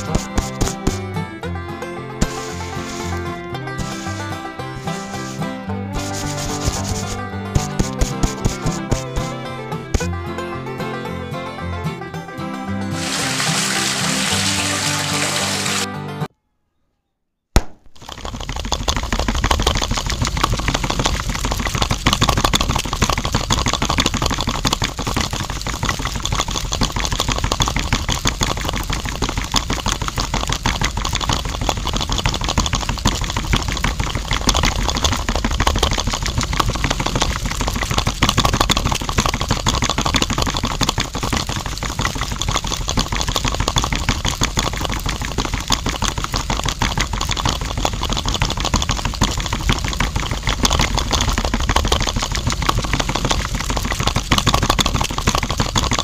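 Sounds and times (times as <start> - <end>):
toy motor gear clatter: 0.0 - 1.0, 18.0 - 56.0.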